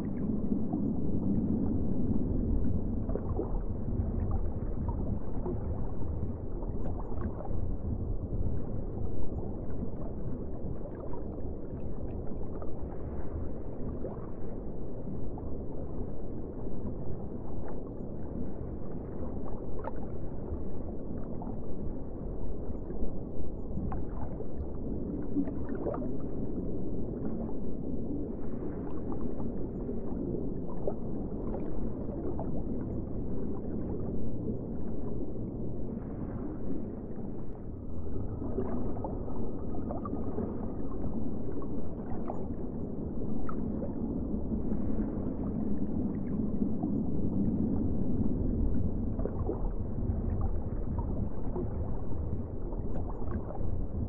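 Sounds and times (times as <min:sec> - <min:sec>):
underwater rumble of water: 0:00.0 - 0:54.0
bubbles gurgling and popping: 0:37.8 - 0:44.2, 0:44.8 - 0:54.0.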